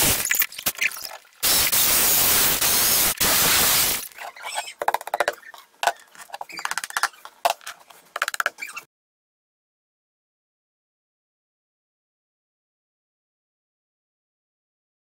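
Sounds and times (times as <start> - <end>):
clicks and knocks: 4.6 - 8.8.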